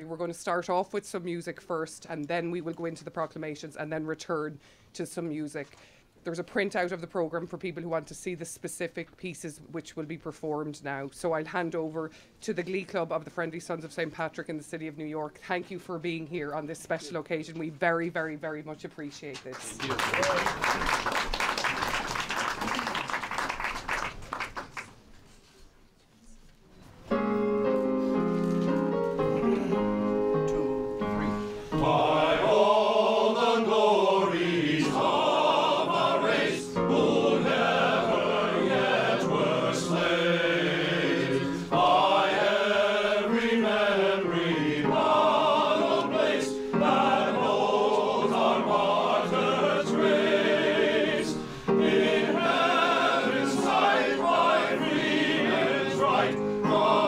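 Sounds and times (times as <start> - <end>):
electronic keyboard chords: 27.1 - 32.1
men's choir singing: 31.7 - 57.0.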